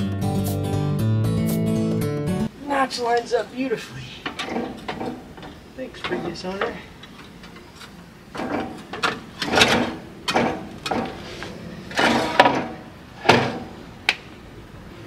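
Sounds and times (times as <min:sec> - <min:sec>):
metal parts clanking and rattling: 0:04.2 - 0:13.7.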